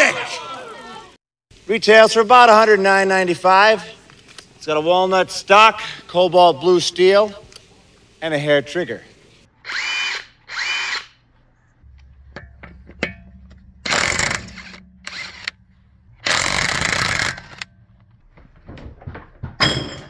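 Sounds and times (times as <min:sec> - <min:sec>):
impact wrench hammering: 0:11.8 - 0:18.8
knocks and clunks: 0:11.8 - 0:20.0.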